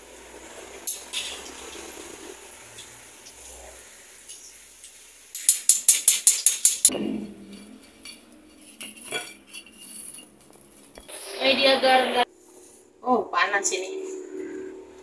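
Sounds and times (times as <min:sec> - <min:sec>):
metal strainer rapping on wok: 0:05.3 - 0:06.9.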